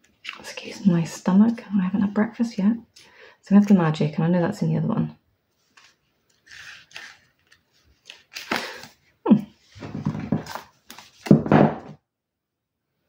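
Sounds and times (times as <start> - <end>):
paper pages rustling: 5.5 - 11.4.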